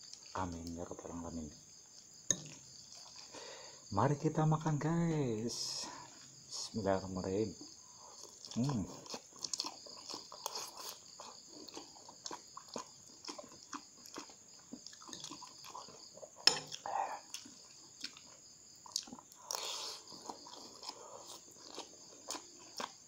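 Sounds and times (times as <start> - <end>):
chewing and slurping noodles: 8.0 - 23.0.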